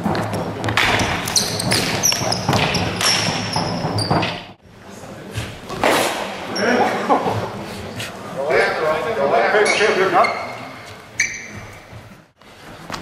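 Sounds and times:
shoes squeaking on sports floor: 0:00.0 - 0:04.6, 0:09.5 - 0:13.0.

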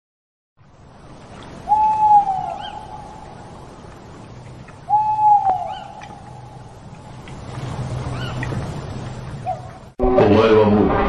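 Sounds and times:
owl hooting: 0:01.6 - 0:03.4, 0:04.9 - 0:06.7, 0:08.1 - 0:08.5, 0:09.4 - 0:09.8.

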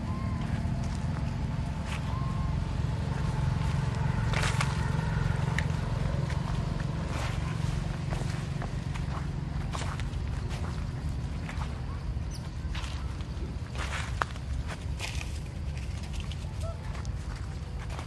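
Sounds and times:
steady low rumble: 0:00.0 - 0:18.0
footsteps crunching dry leaves: 0:00.2 - 0:18.0.

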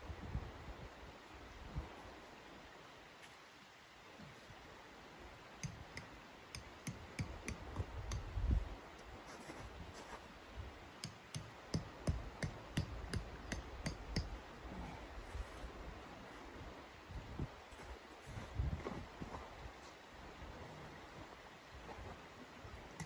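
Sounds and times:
tent stake being hammered: 0:05.6 - 0:08.5, 0:11.0 - 0:14.4.

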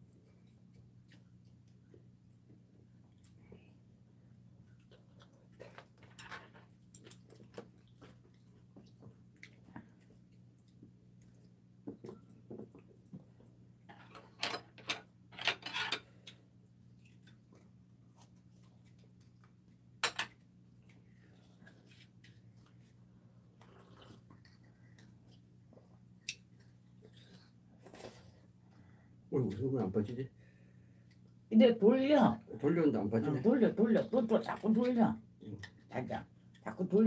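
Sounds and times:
eating noise: 0:23.6 - 0:25.4.

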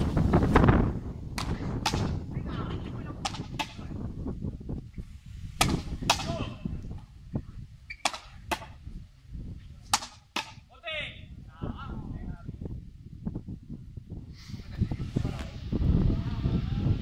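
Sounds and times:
rubber ball cracking off rackets: 0:01.4 - 0:02.2, 0:03.2 - 0:03.8, 0:05.6 - 0:06.4, 0:07.9 - 0:08.8, 0:09.9 - 0:10.6.

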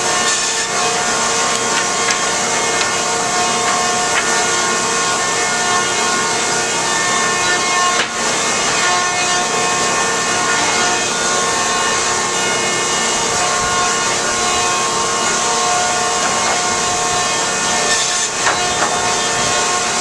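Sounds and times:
electric planer planing wood: 0:00.0 - 0:20.0
whining machine tones: 0:00.0 - 0:20.0.

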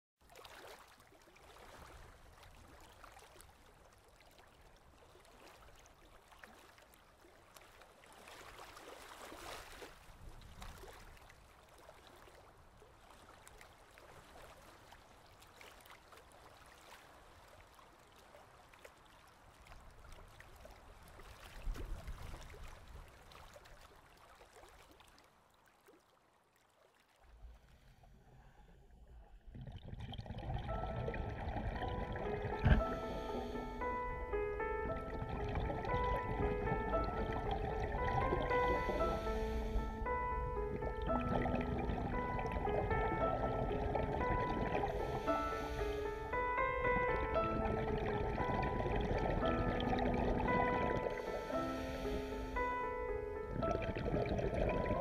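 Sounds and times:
water rushing: 0:29.8 - 0:52.9.

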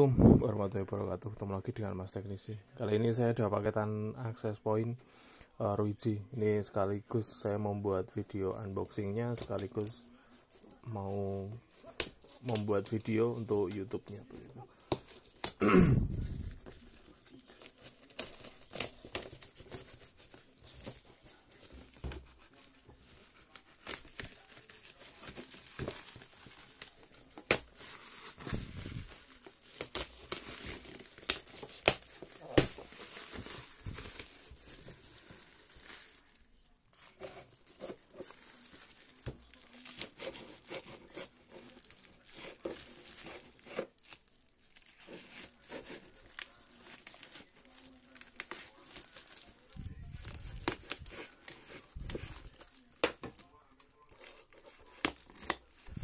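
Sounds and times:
plastic crinkling and crackling: 0:07.0 - 0:56.0
packing tape tearing: 0:16.2 - 0:36.2, 0:37.0 - 0:56.0.

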